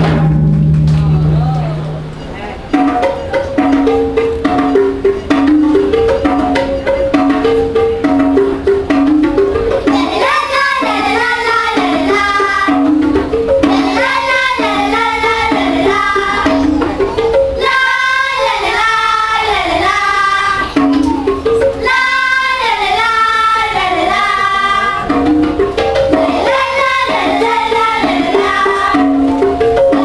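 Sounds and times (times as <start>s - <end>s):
tablas and tuned drums: 0.0s - 30.0s
girls singing: 9.9s - 13.0s, 13.6s - 17.0s, 17.6s - 25.2s, 26.1s - 30.0s.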